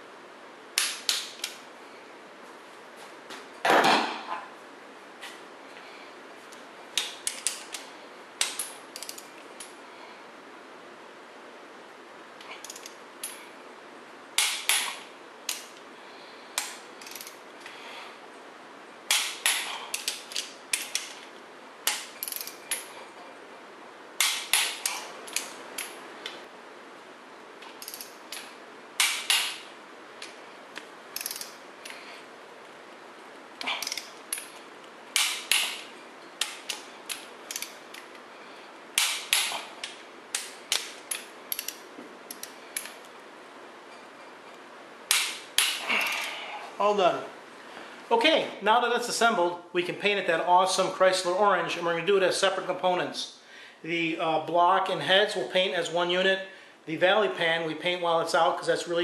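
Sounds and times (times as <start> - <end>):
socket ratchet clicking: 7.0 - 9.7, 12.6 - 13.4, 16.6 - 17.4, 19.1 - 21.2, 21.9 - 22.9, 24.2 - 26.0, 27.8 - 29.6, 31.2 - 32.0, 33.8 - 34.5, 35.2 - 38.2, 39.0 - 43.0.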